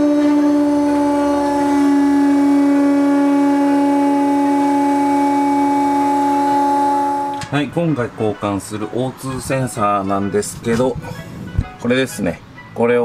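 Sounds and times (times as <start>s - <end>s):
hydraulic pump motor humming: 0.0s - 7.5s.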